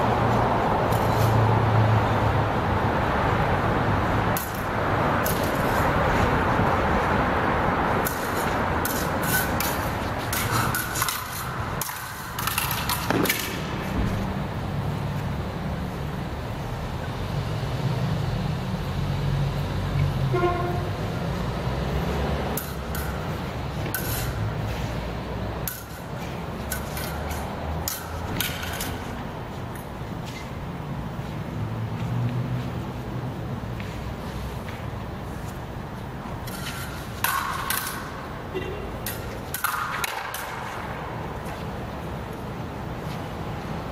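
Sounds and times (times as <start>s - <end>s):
practice swords clashing: 7.9s - 14.0s, 36.4s - 41.5s.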